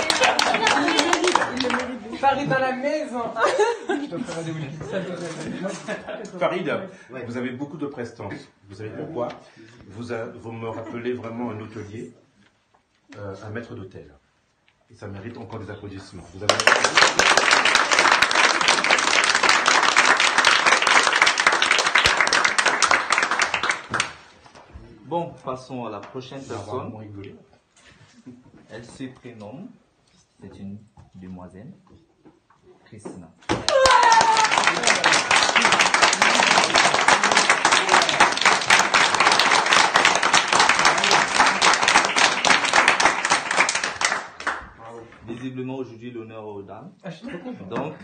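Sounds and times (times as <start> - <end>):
people applauding: 0.0 - 2.2, 16.4 - 24.3, 33.5 - 44.8.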